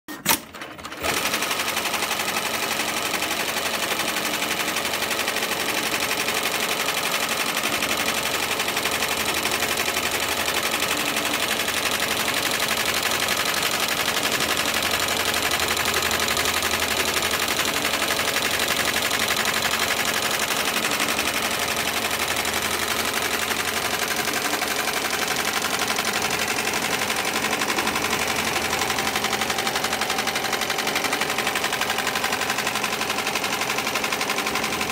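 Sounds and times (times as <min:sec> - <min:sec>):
sewing machine running: 0:00.1 - 0:34.9.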